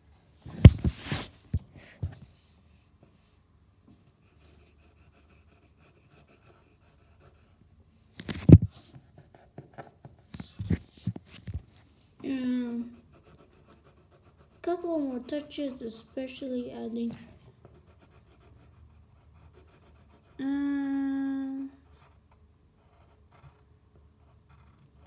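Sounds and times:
pencil scratching on paper: 4.2 - 7.6, 12.5 - 25.0.

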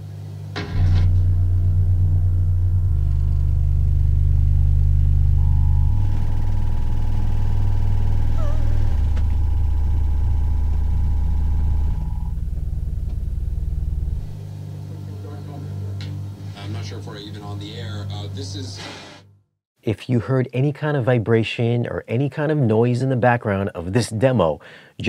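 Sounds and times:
deep bass rumble: 0.6 - 14.6
thin high tone: 5.3 - 12.4.

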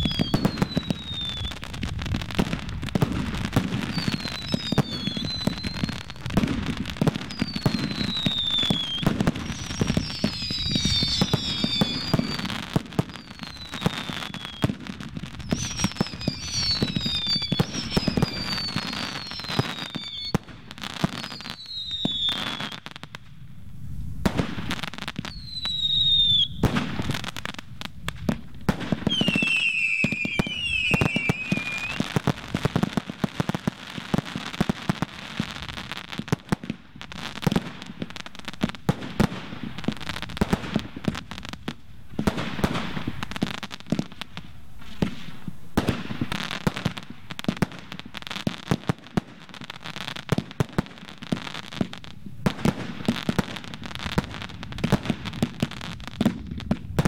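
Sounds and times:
falling firework whistles: 0.0 - 23.3, 24.2 - 57.0.

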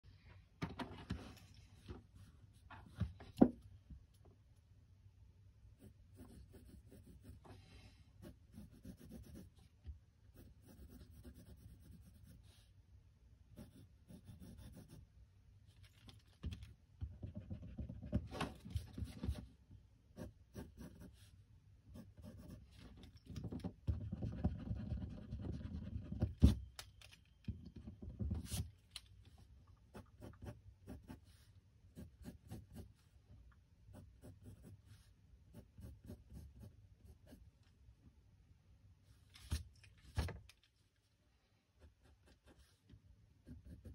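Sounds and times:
pencil scratching on paper: 5.8 - 7.6, 8.2 - 9.6, 10.3 - 12.6, 13.6 - 15.0, 20.2 - 22.7, 23.9 - 26.3, 29.9 - 33.0, 33.9 - 37.5, 43.4 - 43.9.

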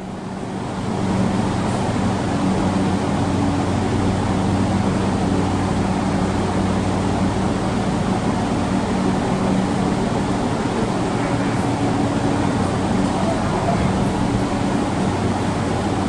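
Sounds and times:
electric train humming: 0.0 - 16.0
low drone: 3.8 - 16.0.

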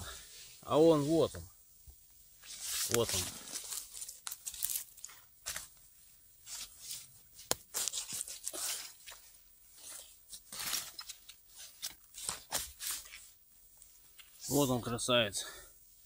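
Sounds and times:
forest litter rustling and crunching: 2.4 - 15.1.

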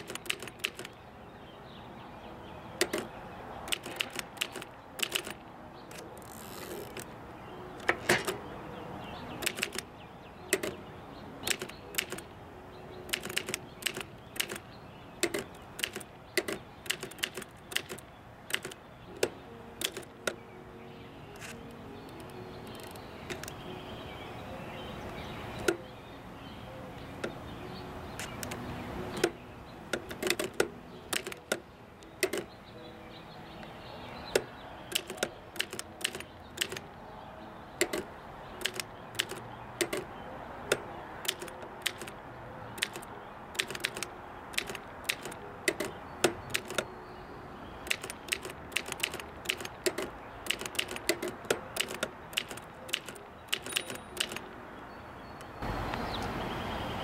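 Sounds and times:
manual typewriter clacking: 0.0 - 1.0, 2.8 - 8.5, 9.3 - 9.9, 10.5 - 12.4, 13.0 - 20.4, 21.4 - 23.6, 28.2 - 32.6, 34.2 - 37.0, 37.8 - 46.9, 47.8 - 54.5.

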